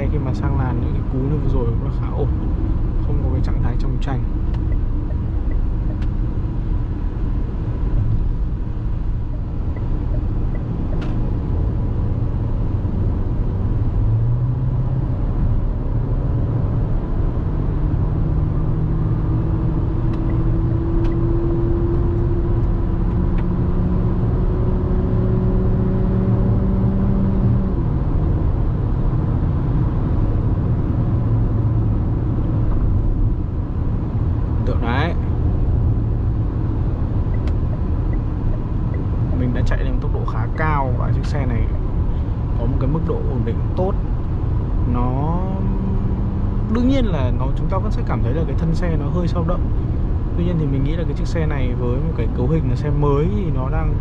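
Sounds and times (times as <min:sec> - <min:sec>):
car engine drone: 0:00.0 - 0:54.0
road and tyre rumble: 0:00.0 - 0:54.0.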